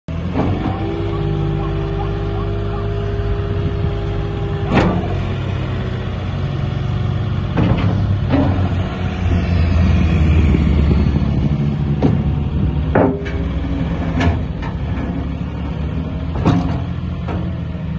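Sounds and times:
diesel engine running: 0.1s - 17.9s
steady hydraulic whine: 0.3s - 15.1s
sharp clunks: 4.6s - 5.2s, 12.9s - 13.5s.

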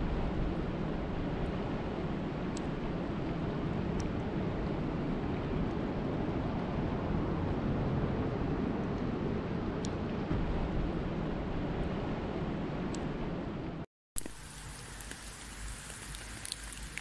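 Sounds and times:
rain falling on a lake: 14.2s - 17.0s.

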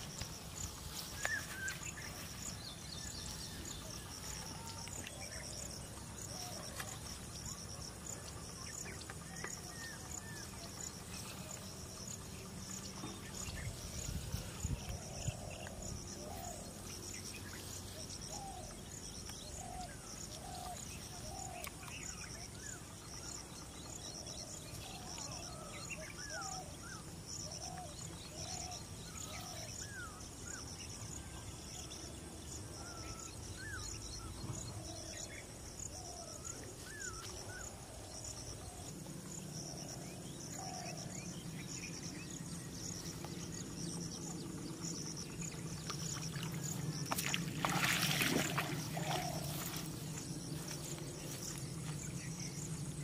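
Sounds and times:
insect chirping: 0.0s - 53.0s.

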